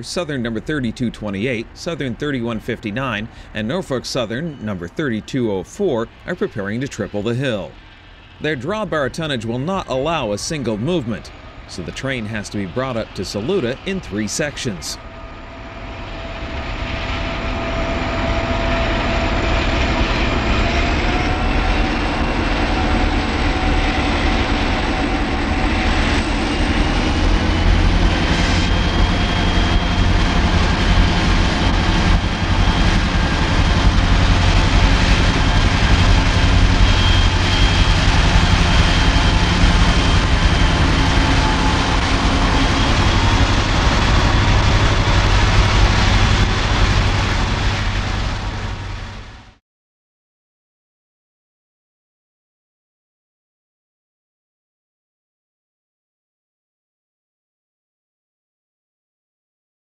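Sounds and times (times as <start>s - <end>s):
diesel locomotives passing: 0.0s - 49.6s
steady whine: 0.0s - 49.6s
heavy rumble: 6.0s - 49.6s.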